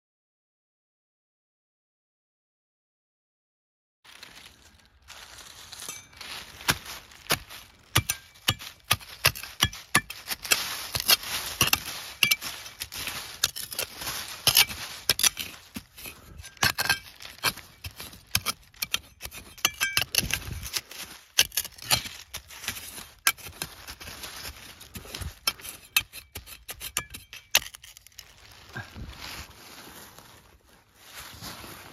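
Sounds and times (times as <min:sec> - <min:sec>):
metal trowel scraping soil: 0:05.4 - 0:28.9
trowel clinking on stone: 0:05.8 - 0:06.3, 0:07.9 - 0:20.8, 0:25.4 - 0:28.1.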